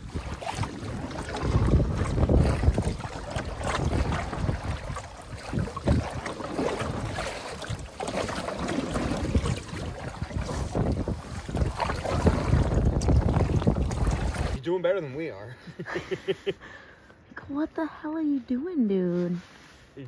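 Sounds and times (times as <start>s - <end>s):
wind on microphone: 0.0s - 14.6s
canoe paddle in water: 0.0s - 14.8s
water slapping hull: 0.0s - 14.8s.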